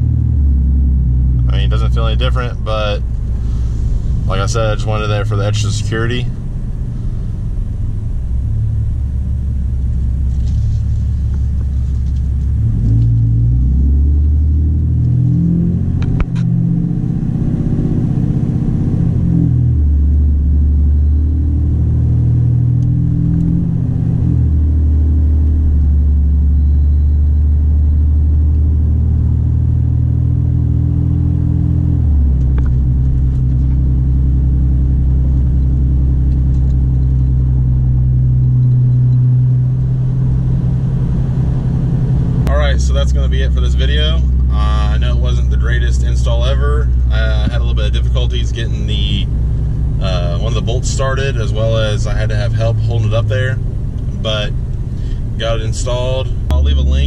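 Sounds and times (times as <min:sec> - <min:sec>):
diesel truck engine accelerating: 0:00.0 - 0:57.0.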